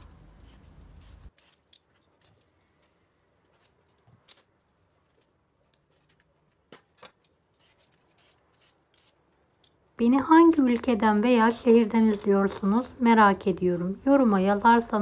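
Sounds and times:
vegetable peeler scraping: 0.0 - 2.2, 7.3 - 9.8.

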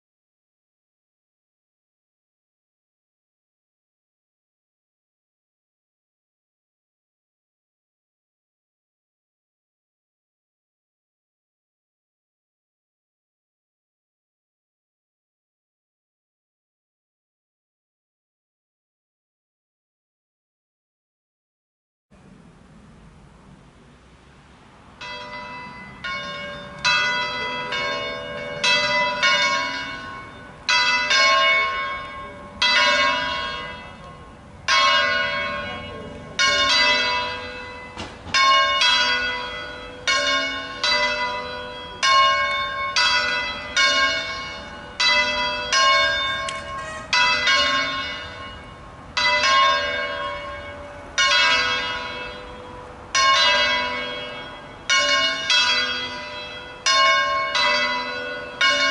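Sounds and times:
church bells swinging and ringing: 25.0 - 58.9.

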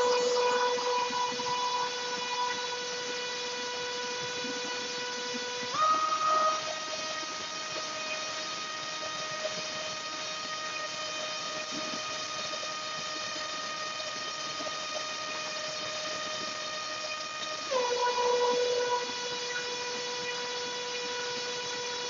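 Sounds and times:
electric motor propeller whine: 0.0 - 22.0.

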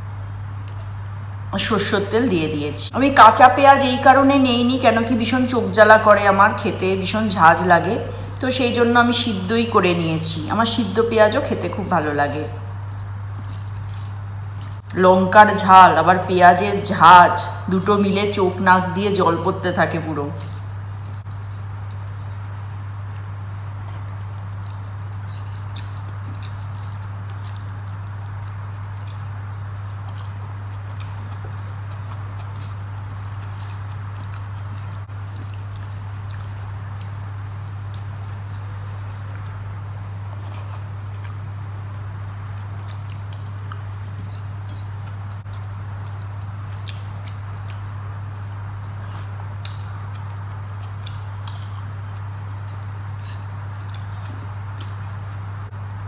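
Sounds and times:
low hum with faint hiss: 0.0 - 56.0
chewing and lip smacks: 0.3 - 1.2, 12.5 - 15.0, 20.2 - 55.5
fingers squishing moist rice: 12.8 - 14.9, 20.3 - 41.4, 42.5 - 55.4.

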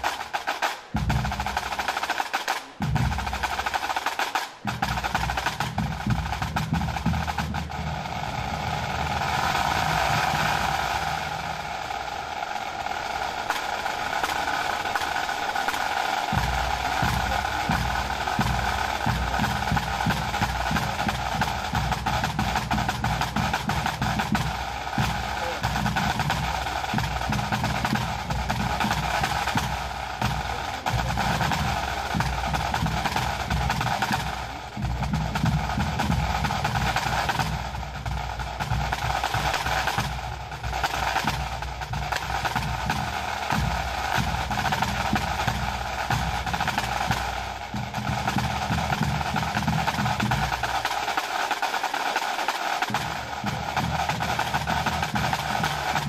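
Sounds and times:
bagpipes: 0.0 - 56.0
snare drum rolls: 0.0 - 56.0
tenor drums: 0.0 - 56.0
bass drum: 4.6 - 11.8, 16.3 - 50.8.

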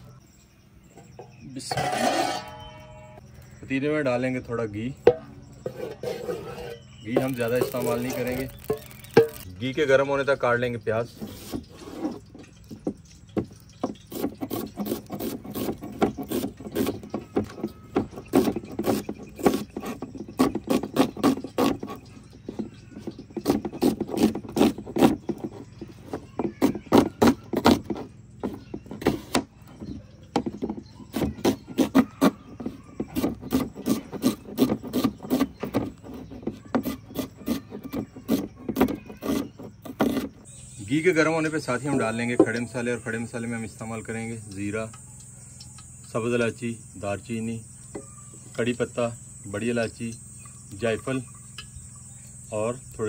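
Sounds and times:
knife chopping on wooden board: 30.4 - 40.3.

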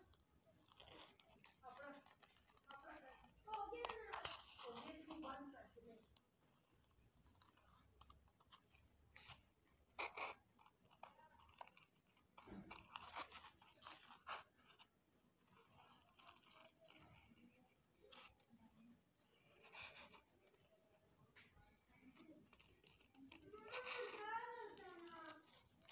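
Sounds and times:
scissors snipping glitter sheet: 0.0 - 14.9, 15.5 - 20.7, 21.3 - 25.9.

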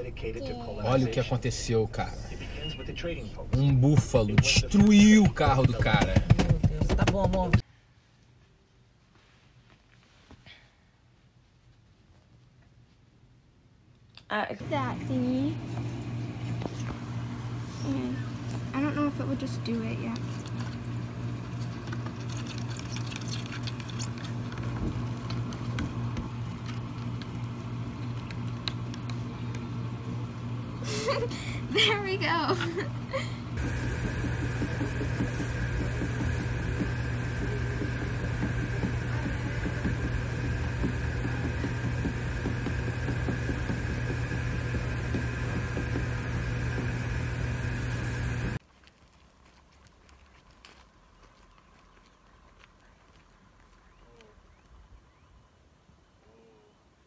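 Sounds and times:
steady low hum: 0.0 - 7.6, 14.2 - 48.6
claws scratching and plastic tapping: 20.1 - 29.8.

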